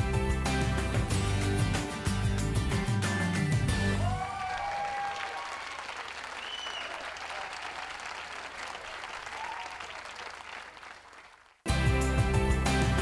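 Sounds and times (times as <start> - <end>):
music: 0.0 - 4.2, 11.7 - 13.0
audience applauding: 3.9 - 11.7
faint cheers and whistles: 4.0 - 8.1, 9.0 - 10.2.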